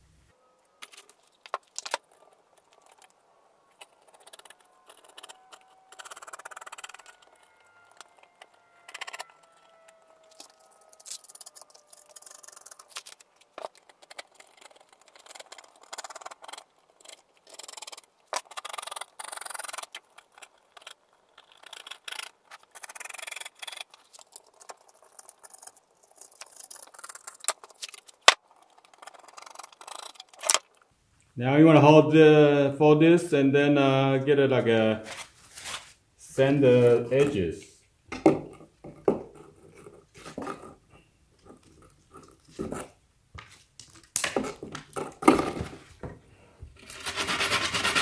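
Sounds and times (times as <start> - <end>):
grip tape scraping and crinkling: 0.8 - 30.9, 35.0 - 36.0, 46.8 - 48.0.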